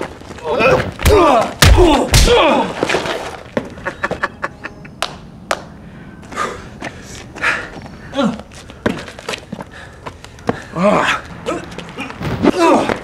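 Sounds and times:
people grunting and yelling: 0:00.4 - 0:02.8, 0:10.7 - 0:13.0
punches and kicks thudding: 0:00.7 - 0:02.8.

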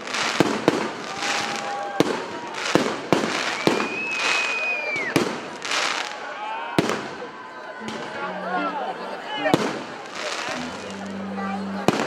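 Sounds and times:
fireworks crackling: 0:00.0 - 0:08.2, 0:09.4 - 0:12.0
high steady whistle: 0:03.5 - 0:05.2.

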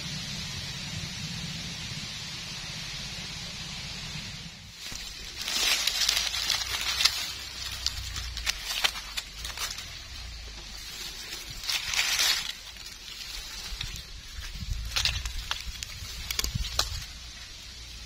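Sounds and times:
dry leaves rustling and crunching: 0:04.7 - 0:18.0
sharp snaps and clicks: 0:14.7 - 0:17.2.

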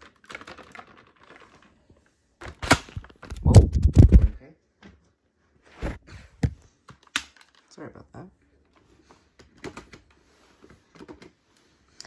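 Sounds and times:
heavy thumps: 0:03.3 - 0:04.4.

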